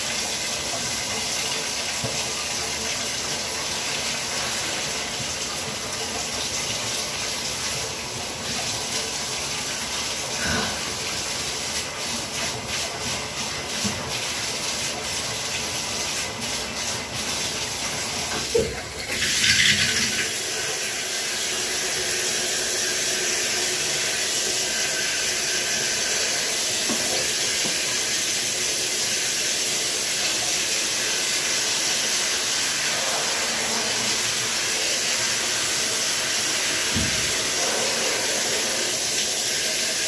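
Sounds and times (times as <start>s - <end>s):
shower spray hissing: 10.4s - 11.0s, 19.3s - 40.0s.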